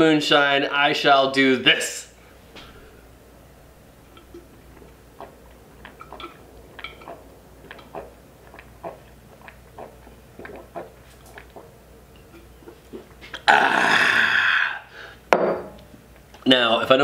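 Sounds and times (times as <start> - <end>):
person gulping water: 4.1 - 14.8.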